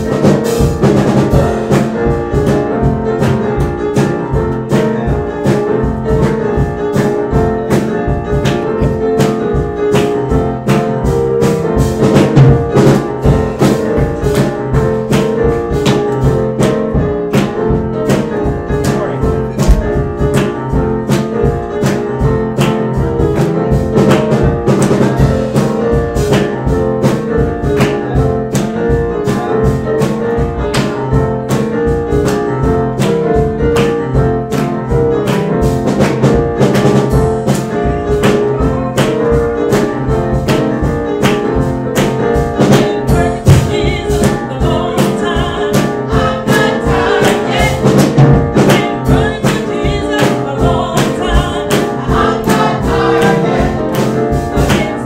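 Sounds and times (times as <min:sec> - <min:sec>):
held chords: 0:00.0 - 0:55.0
steady drum beat: 0:00.0 - 0:55.0
gospel singing: 0:24.7 - 0:26.6, 0:42.4 - 0:55.0.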